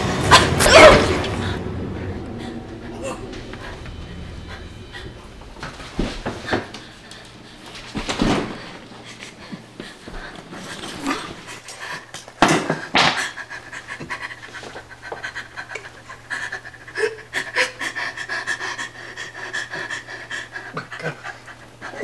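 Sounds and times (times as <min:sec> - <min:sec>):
steady high ringing tone: 0:00.0 - 0:08.8
person panting heavily: 0:01.2 - 0:22.0.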